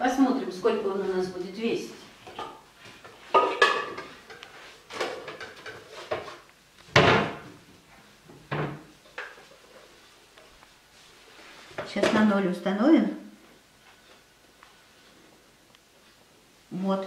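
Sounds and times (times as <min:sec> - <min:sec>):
kitchen cupboards and utensils clattering: 0:02.1 - 0:07.7, 0:08.3 - 0:10.0.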